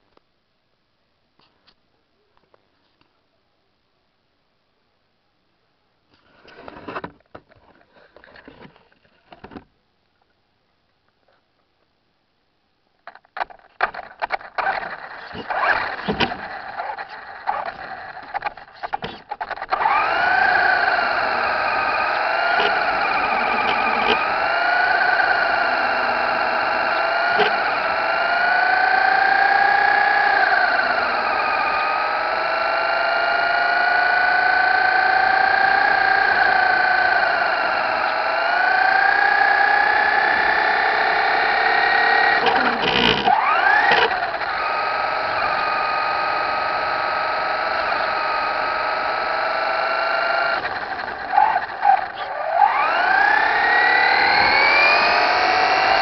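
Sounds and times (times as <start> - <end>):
toy truck electric motor whining: 13.1 - 56.0.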